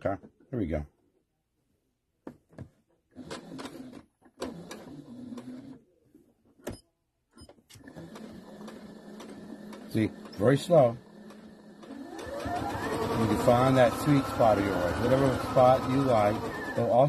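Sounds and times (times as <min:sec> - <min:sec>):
sewing machine stitching: 0:03.1 - 0:05.8, 0:07.7 - 0:17.0
sewing machine clicks: 0:07.7 - 0:17.0.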